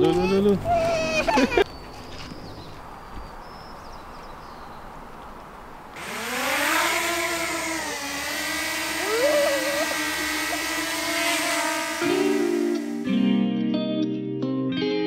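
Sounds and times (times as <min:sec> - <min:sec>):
drone motors whining: 0:06.0 - 0:13.1.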